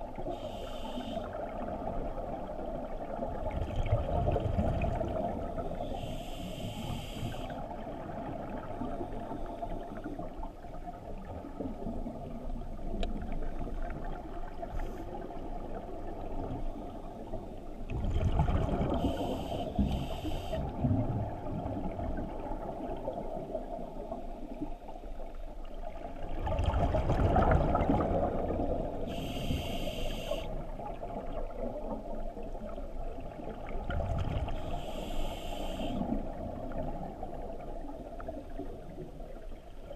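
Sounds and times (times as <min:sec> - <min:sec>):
rumble of exhaled bubbles: 0:01.3 - 0:06.0, 0:06.8 - 0:24.7, 0:25.7 - 0:29.7, 0:30.5 - 0:34.8
hissing regulator breaths: 0:05.9 - 0:07.5, 0:19.0 - 0:20.7, 0:29.1 - 0:30.5, 0:34.6 - 0:36.0.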